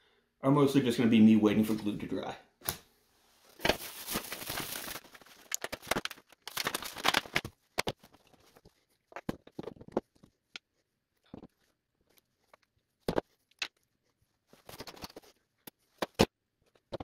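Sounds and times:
rustling and scraping parts: 0:03.4 - 0:17.0.

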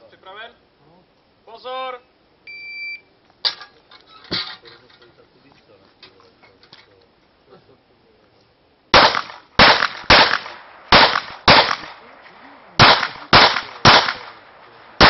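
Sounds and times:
handgun shots with echo: 0:09.0 - 0:12.1, 0:12.8 - 0:15.0.

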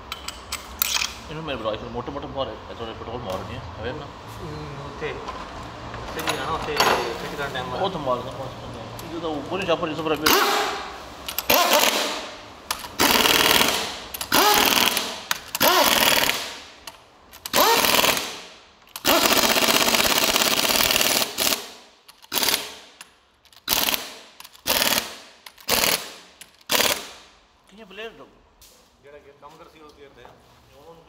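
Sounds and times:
compressed-air tool bursts: 0:10.2 - 0:16.8, 0:17.5 - 0:23.0, 0:23.6 - 0:27.3.

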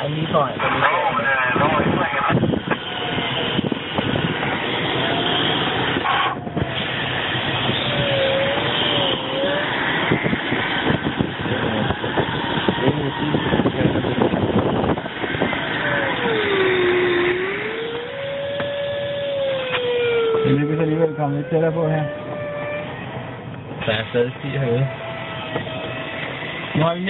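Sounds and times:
electronic variometer tone: 0:15.4 - 0:27.0.

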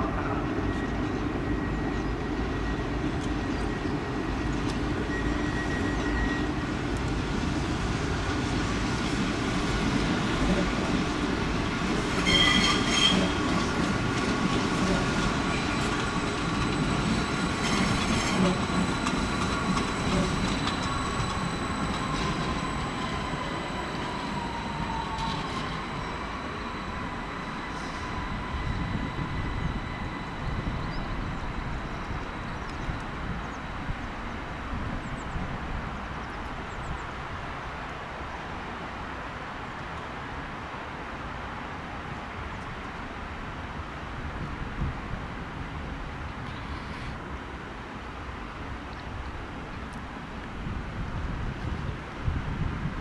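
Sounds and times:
train rumbling with whining drive: 0:00.0 - 0:53.0
wheel squeals: 0:00.6 - 0:06.7, 0:12.1 - 0:13.9, 0:14.8 - 0:34.4.

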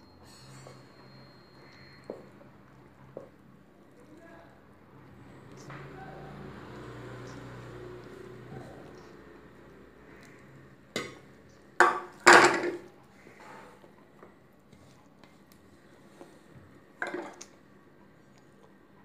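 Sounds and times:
steel saucepan set down: 0:11.8 - 0:12.9, 0:17.0 - 0:17.4.

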